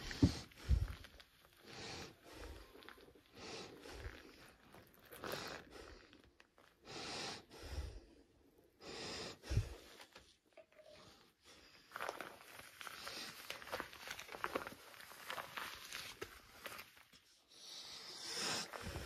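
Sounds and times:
person breathing noisily: 0.0s - 6.2s, 6.8s - 10.0s, 17.5s - 19.0s.

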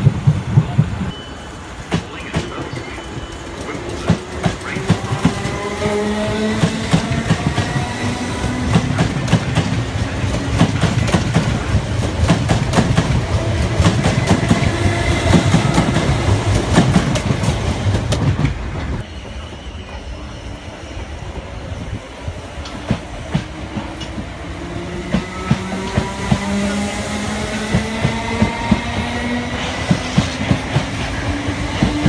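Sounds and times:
train whine: 0.0s - 32.0s
train wheels clattering: 1.9s - 19.0s.

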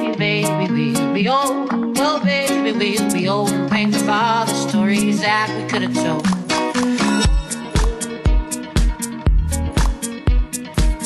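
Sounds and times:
song with singing and guitar: 0.0s - 11.0s
steady drum beat: 6.2s - 11.0s.

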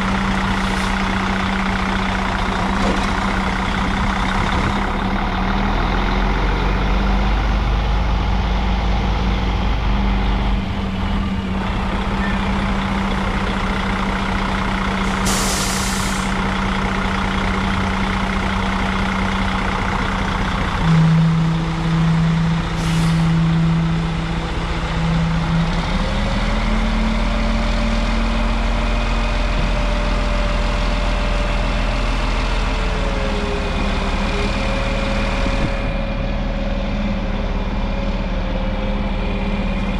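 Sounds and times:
truck diesel engine running: 0.0s - 39.9s
air hissing: 15.1s - 16.4s.

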